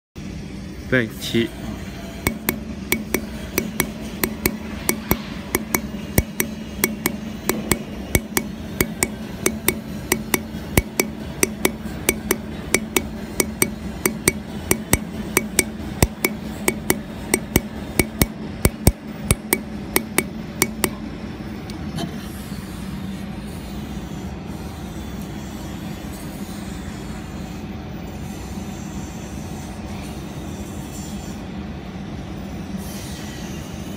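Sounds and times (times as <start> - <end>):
steady low hum: 0.2 - 24.6.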